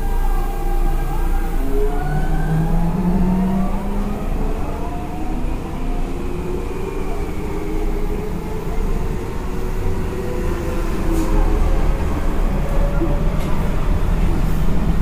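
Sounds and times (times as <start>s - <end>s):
electric train motor whine: 0.0s - 8.7s
wheels rumbling on rail: 0.0s - 15.0s.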